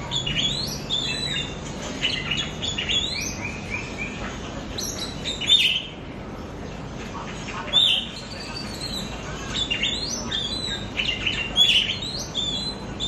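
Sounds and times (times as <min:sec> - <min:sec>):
bird whistling song: 0:00.0 - 0:04.2, 0:07.7 - 0:13.0.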